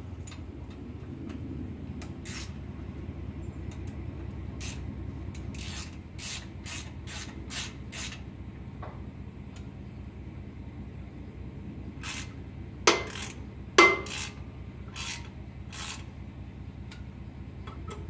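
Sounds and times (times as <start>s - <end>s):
steady low hum: 0.0s - 18.0s
hand ratchet clicking: 2.2s - 2.5s, 5.4s - 8.2s, 14.0s - 14.4s, 15.0s - 16.1s.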